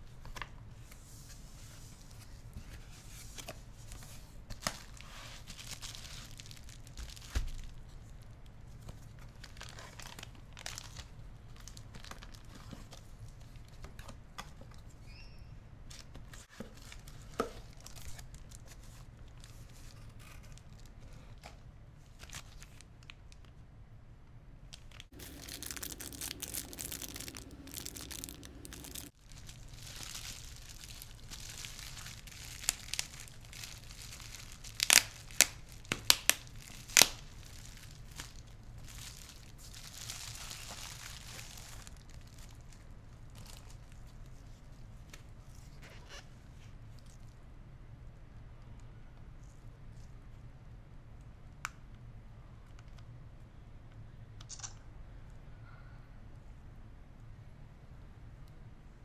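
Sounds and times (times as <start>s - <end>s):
bubble-wrap crinkling and tearing: 4.5s - 8.2s, 9.1s - 13.1s, 24.8s - 44.4s
cardboard and paper rustling: 25.1s - 34.5s.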